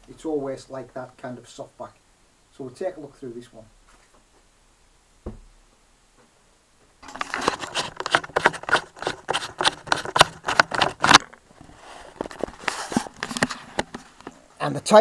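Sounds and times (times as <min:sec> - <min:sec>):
camera handling knocks and rubs: 0:07.0 - 0:11.4, 0:12.1 - 0:14.4.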